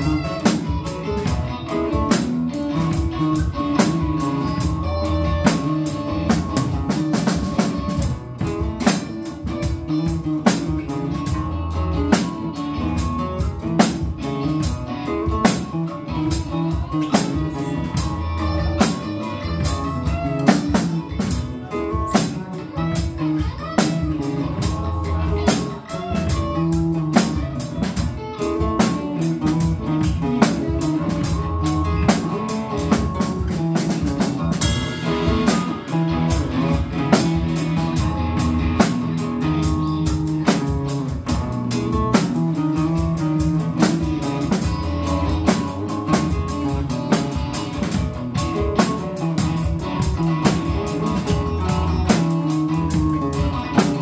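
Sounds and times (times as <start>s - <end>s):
drum kit beat: 0.0s - 54.0s
electric guitars: 0.0s - 54.0s
cymbal strokes: 34.6s - 36.8s.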